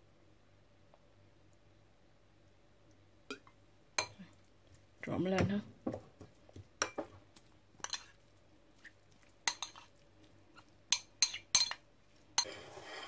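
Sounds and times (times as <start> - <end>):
fork clinking against ceramic bowl: 9.5 - 9.9, 10.9 - 11.8.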